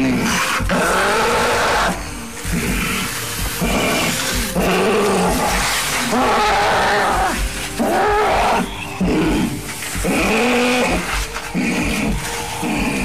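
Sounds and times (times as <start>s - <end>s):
person breathing: 11.0s - 13.0s.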